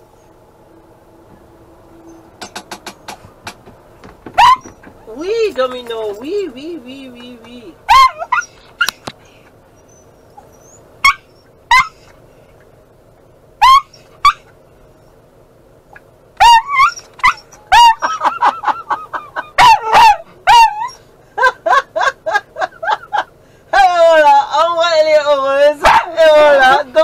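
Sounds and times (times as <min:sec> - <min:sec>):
dog barking and whining: 0:04.3 - 0:12.2, 0:13.6 - 0:15.2, 0:15.9 - 0:18.4, 0:19.4 - 0:22.4, 0:25.6 - 0:27.0.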